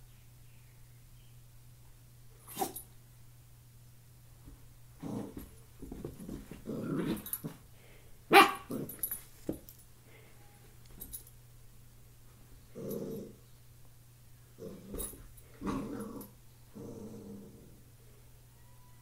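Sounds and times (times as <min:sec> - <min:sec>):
puppy growling: 0:06.6 - 0:07.6, 0:12.7 - 0:13.4, 0:14.6 - 0:17.9
puppy barking: 0:08.3 - 0:08.7.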